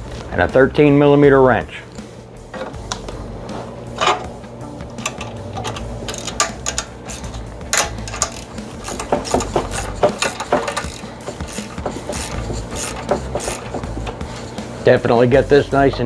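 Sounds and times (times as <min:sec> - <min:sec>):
ratcheting wrench clicking: 0:05.0 - 0:14.5.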